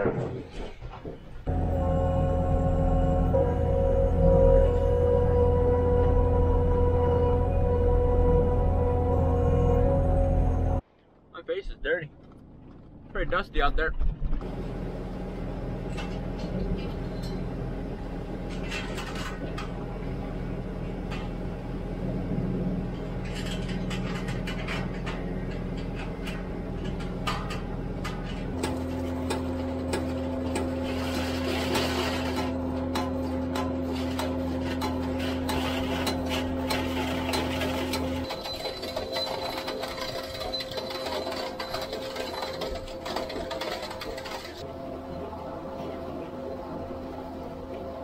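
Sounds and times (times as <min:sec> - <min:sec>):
motor humming: 0:01.5 - 0:10.8, 0:14.4 - 0:48.0
wire clinking and scraping on metal: 0:15.8 - 0:21.6, 0:22.8 - 0:44.7.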